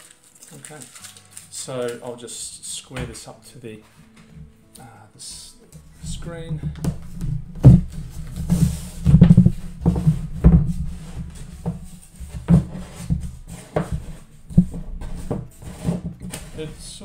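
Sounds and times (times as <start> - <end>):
tape crumpling: 0.0 - 2.2
paper rustling: 0.0 - 2.4
tape being peeled: 0.0 - 2.4, 5.8 - 17.0.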